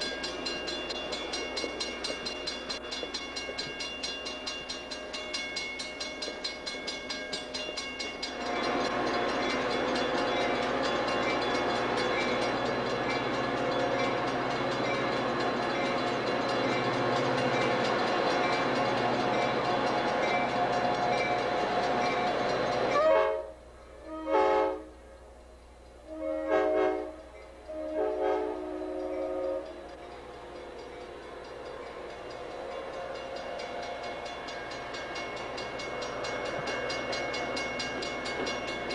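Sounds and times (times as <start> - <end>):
diesel locomotive running: 0.0 - 38.9
train horn blasts: 19.1 - 25.2, 26.0 - 34.5.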